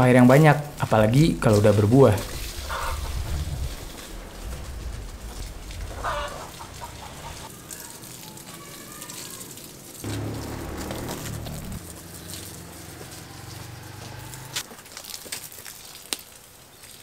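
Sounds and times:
chickens clucking: 2.6 - 3.3, 5.9 - 7.5
low droning hum: 10.1 - 13.6.

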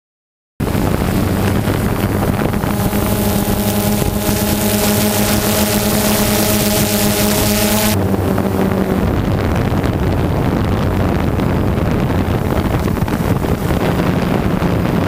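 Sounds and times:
motor hum: 0.6 - 11.2
wind rushing over microphone: 0.6 - 15.0.

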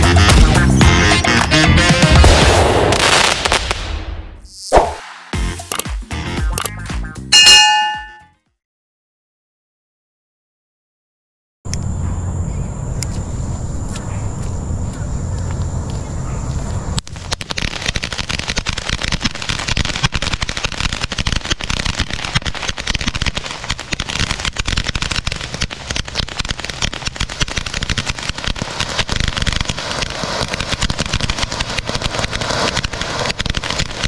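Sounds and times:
firework fountain crackling: 16.9 - 34.0.

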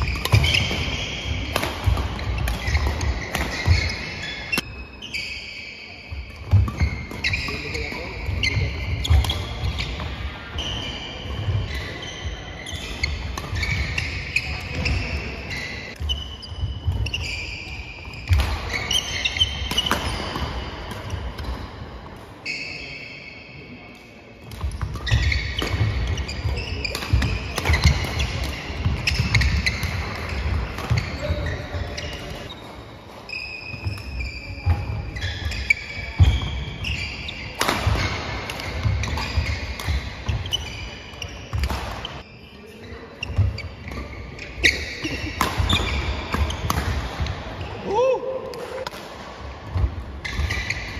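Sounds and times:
rackets hitting shuttlecock: 0.0 - 4.8, 12.6 - 22.3, 24.4 - 42.3, 43.2 - 47.7, 48.3 - 50.9.

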